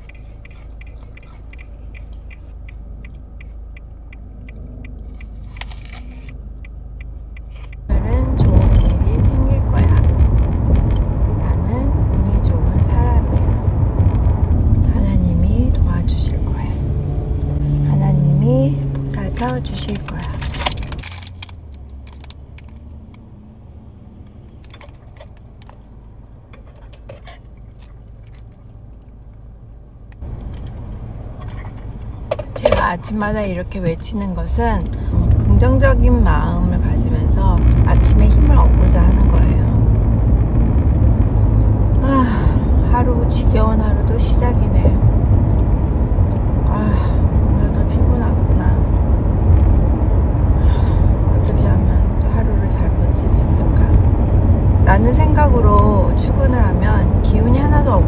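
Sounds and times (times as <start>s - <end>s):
light regular ticking: 0.0s - 11.3s
road and engine rumble: 0.0s - 58.0s.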